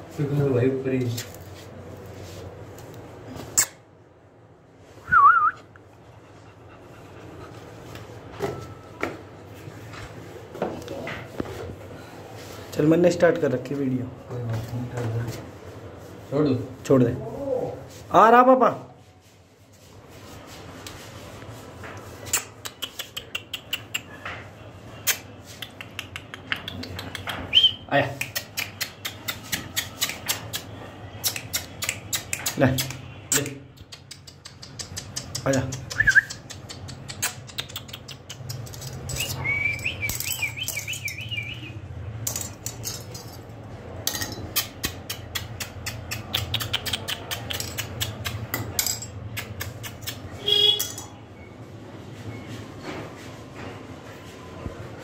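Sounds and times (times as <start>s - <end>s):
tongue clicks and kissing squeaks: 3.5s - 3.8s, 22.2s - 24.2s, 25.0s - 41.6s, 44.6s - 48.5s, 49.3s - 50.4s.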